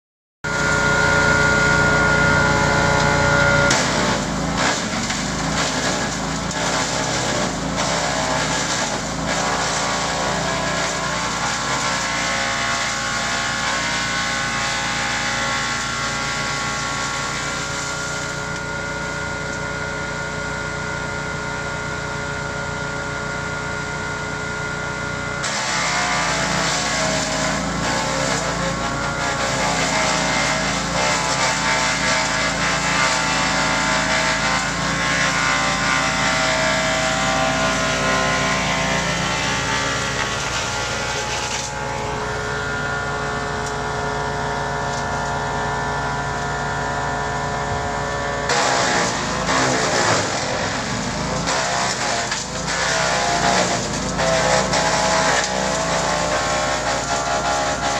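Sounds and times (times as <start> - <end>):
wood chipper engine running: 0.4 - 57.9
branches cracking and shredding: 2.7 - 18.7, 25.4 - 45.5, 48.5 - 57.9.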